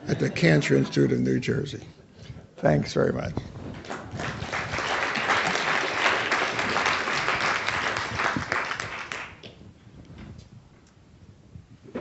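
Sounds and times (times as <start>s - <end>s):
audience applauding: 3.8s - 9.5s.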